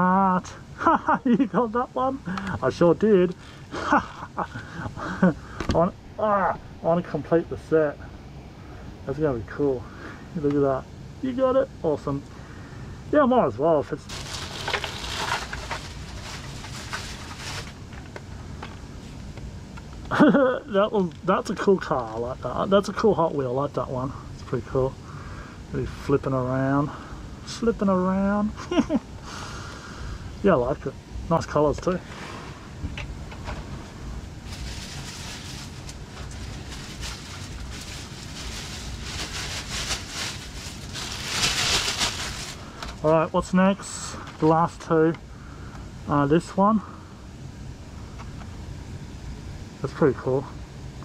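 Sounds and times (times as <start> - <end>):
low steady rumble: 0.0 - 51.0
plastic bag rustling: 14.1 - 19.2, 33.4 - 43.5.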